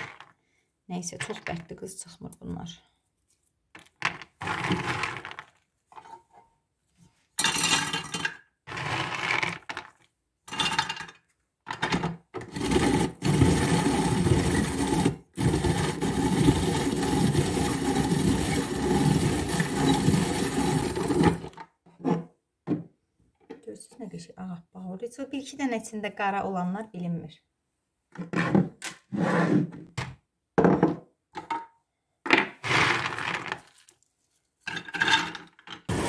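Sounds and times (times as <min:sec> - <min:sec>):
nuts grinding in hand grater: 0:04.4 - 0:05.5, 0:08.7 - 0:09.8, 0:12.4 - 0:21.6.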